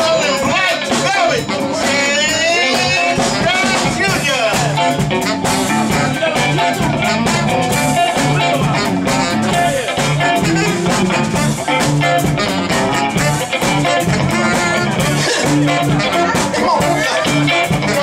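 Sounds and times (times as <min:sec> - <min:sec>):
bass: 0:00.0 - 0:18.0
drums: 0:00.0 - 0:18.0
electric guitar: 0:00.0 - 0:18.0
tenor saxophone: 0:04.8 - 0:18.0.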